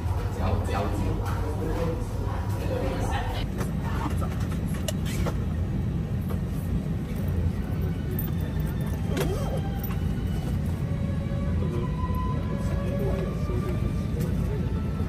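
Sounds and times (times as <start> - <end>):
airliner cabin rumble: 0.0 - 15.0
soft background music: 7.0 - 15.0.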